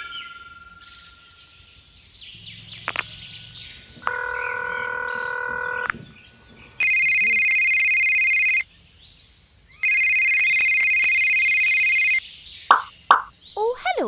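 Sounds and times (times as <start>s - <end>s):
loud multi-pitch buzzing tone: 4.0s - 5.9s, 6.8s - 8.6s, 9.8s - 12.2s
cartoon chime: 6.8s - 8.6s, 9.8s - 12.2s.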